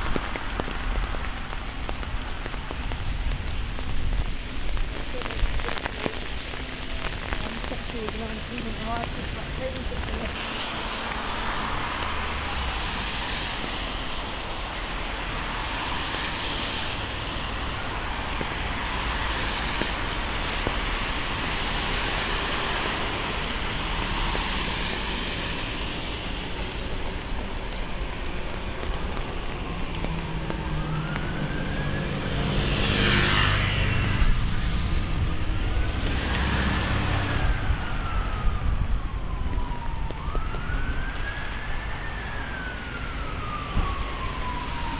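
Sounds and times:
traffic hiss on wet street: 0.0 - 44.9
emergency vehicle siren wailing: 9.9 - 44.9.

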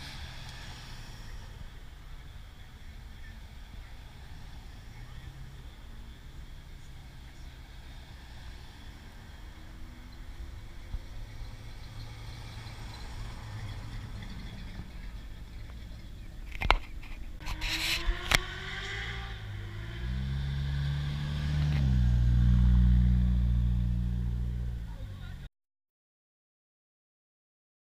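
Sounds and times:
car engines passing: 0.0 - 25.5.

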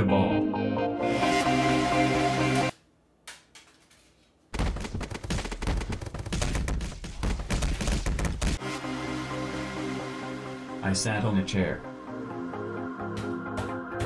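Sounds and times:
rapid loud cracks and booms: 4.6 - 8.6.

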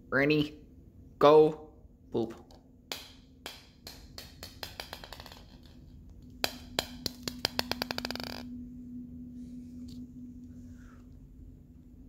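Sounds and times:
plastic ball bouncing on tile floor: 2.5 - 8.6.

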